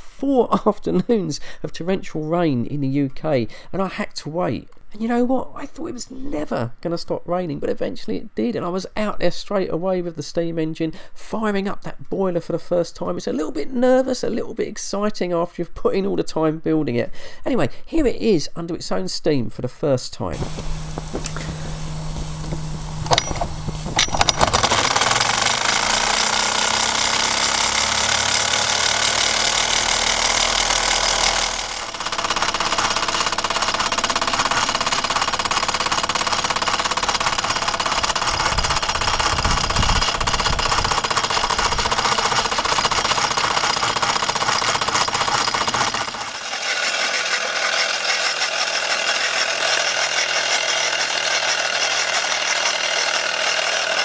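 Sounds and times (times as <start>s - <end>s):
small steam engine chuffing: 20.4s - 54.0s.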